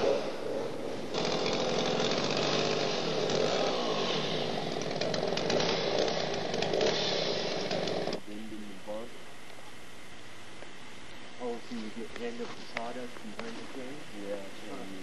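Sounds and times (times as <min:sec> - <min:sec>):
chainsaw cutting wood: 0:00.0 - 0:08.2.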